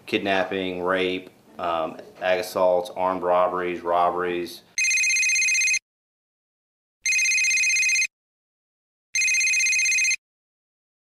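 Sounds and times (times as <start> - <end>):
desk telephone ringing: 4.8 - 5.8, 7.0 - 8.1, 9.2 - 10.2.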